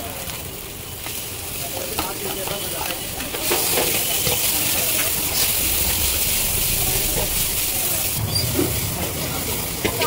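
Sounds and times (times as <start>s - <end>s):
vegetables sizzling in oil: 0.0s - 10.0s.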